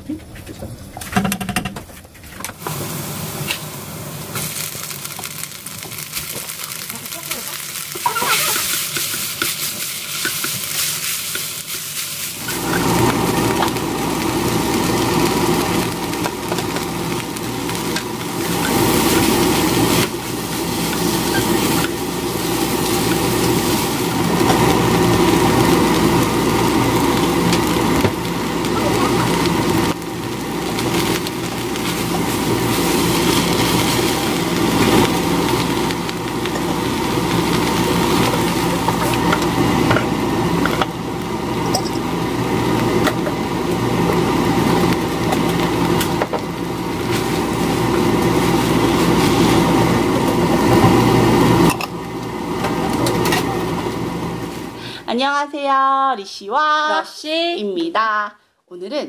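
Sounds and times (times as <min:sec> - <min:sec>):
seaweed sizzling in oil: 0:02.6 - 0:55.0
spatula stirring in frying pan: 0:07.5 - 0:13.8.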